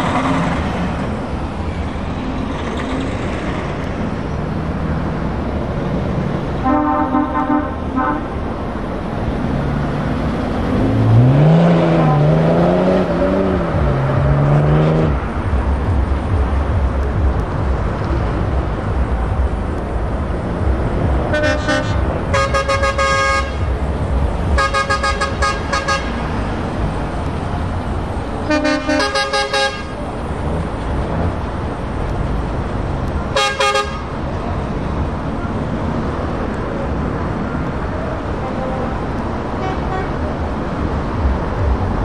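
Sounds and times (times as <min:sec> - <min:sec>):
truck diesel engines rumbling: 0:00.0 - 0:42.0
truck horn blasts: 0:06.6 - 0:08.4, 0:21.2 - 0:23.7, 0:24.6 - 0:26.3, 0:28.4 - 0:30.0, 0:33.4 - 0:34.1, 0:39.6 - 0:40.2.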